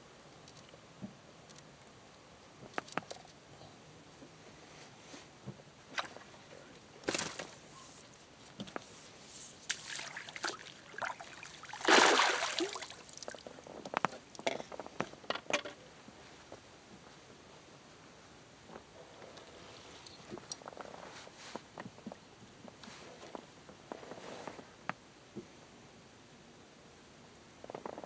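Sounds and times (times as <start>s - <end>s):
net splashing in water: 9.7s - 13.4s.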